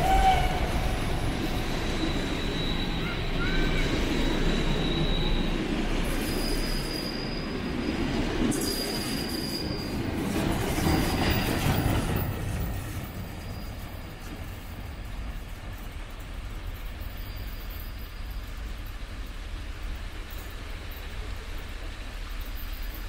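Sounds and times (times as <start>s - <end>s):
high thin wheel squeal: 0.0s - 7.9s, 8.5s - 16.0s, 16.8s - 18.7s
train rumbling on rails: 0.0s - 23.0s.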